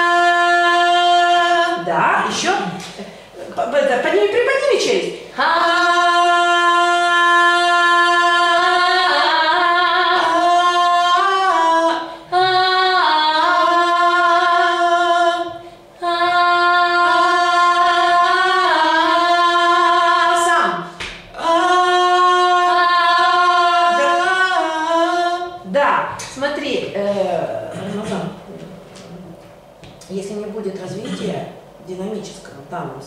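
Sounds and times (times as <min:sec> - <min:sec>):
person singing unaccompanied: 0:00.0 - 0:01.9, 0:05.4 - 0:20.8, 0:21.4 - 0:25.6.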